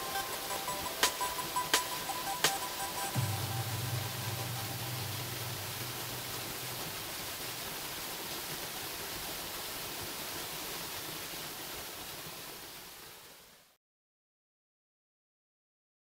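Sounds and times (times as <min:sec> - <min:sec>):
waterfall rushing onto rocks: 0:00.0 - 0:13.8
low hum: 0:03.1 - 0:07.9.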